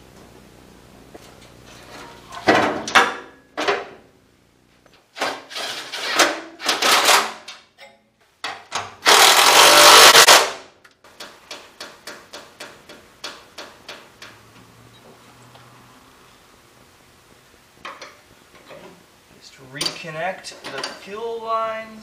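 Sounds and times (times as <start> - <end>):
cordless power driver running: 9.1 - 10.4.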